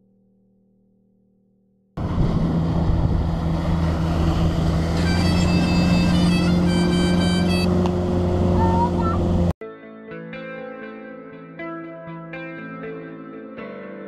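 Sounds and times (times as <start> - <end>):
motorboat engine running: 2.0 - 9.5
water rushing past hull: 2.0 - 9.5
high thin tones: 5.0 - 7.8.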